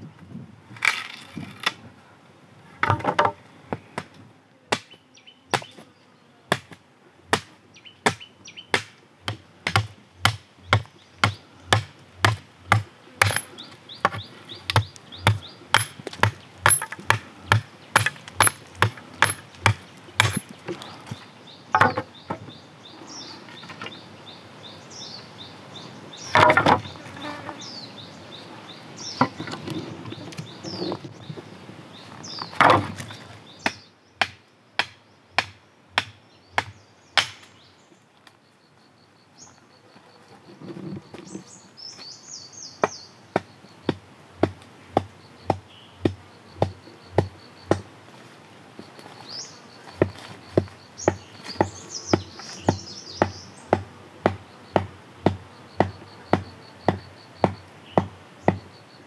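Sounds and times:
machete chopping wood: 4.7 - 5.8, 6.5 - 20.5, 21.8 - 22.4, 26.3 - 26.9, 32.6 - 37.5, 42.8 - 47.9, 50.0 - 58.6
birds chirping: 4.8 - 6.3, 7.7 - 8.8, 10.2 - 44.0, 44.8 - 47.8, 48.8 - 59.0
insect buzzing: 26.2 - 30.8, 48.9 - 59.0.

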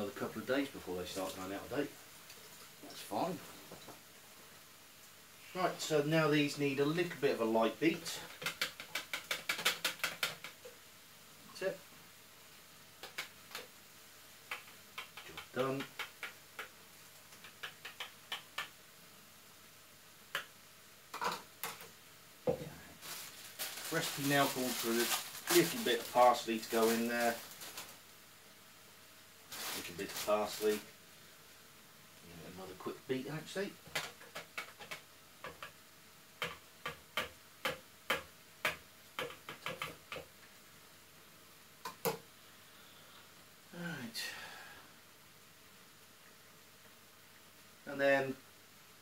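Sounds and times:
fork tapping plastic jug: 14.5 - 16.7, 17.3 - 18.7, 36.4 - 40.3.

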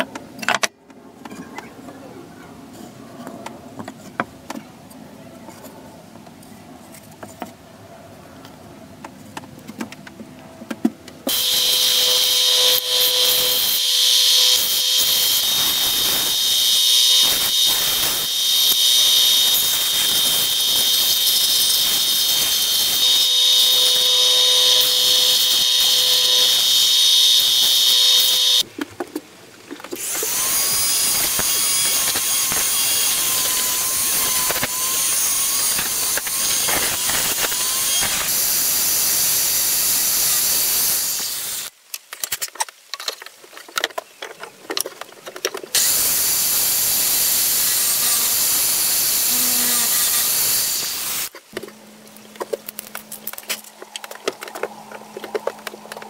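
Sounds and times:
belt sander sanding wood: 11.3 - 28.6
drill press boring into wood: 11.3 - 28.6
rotary tool grinding wood: 11.3 - 28.6, 30.0 - 41.7, 45.5 - 51.6.

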